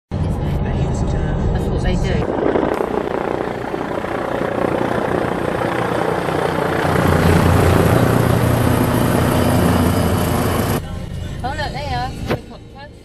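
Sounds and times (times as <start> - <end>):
helicopter flying overhead: 1.9 - 10.8.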